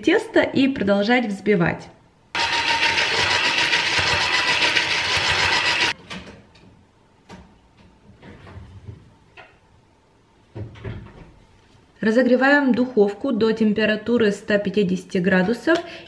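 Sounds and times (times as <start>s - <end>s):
electric hand mixer whirring: 2.4s - 6.0s.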